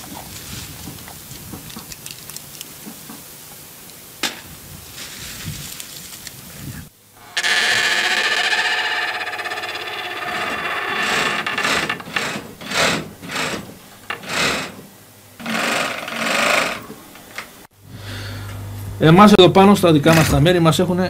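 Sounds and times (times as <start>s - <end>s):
bench machine motor whine: 7.2s - 14.8s
uneven rasping surges: 7.2s - 17.2s.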